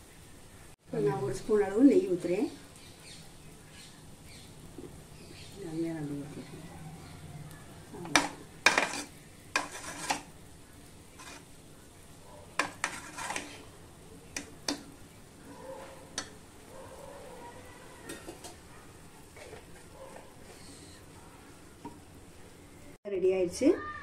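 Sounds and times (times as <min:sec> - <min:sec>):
metal spatula scraping pot: 0:08.0 - 0:10.3, 0:11.1 - 0:11.6, 0:12.6 - 0:14.8, 0:19.3 - 0:21.0.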